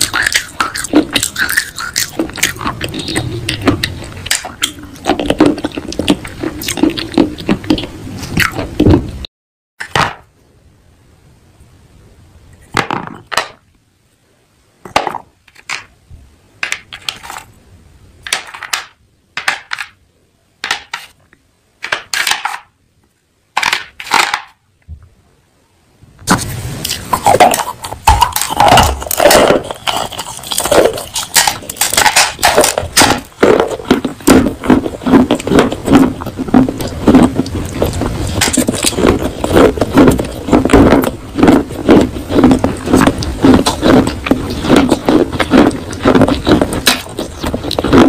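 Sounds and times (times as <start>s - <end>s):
rhythmic chewing: 0.0s - 9.3s, 26.3s - 48.0s
clay pot crunching: 0.0s - 10.3s, 16.6s - 17.6s, 18.2s - 20.0s, 23.6s - 24.6s, 26.3s - 48.0s.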